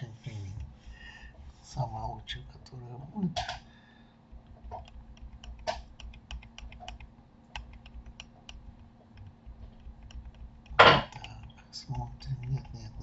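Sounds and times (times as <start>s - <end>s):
faint steady hum: 0.0s - 13.0s
keyboard and mouse clicks: 4.4s - 13.0s.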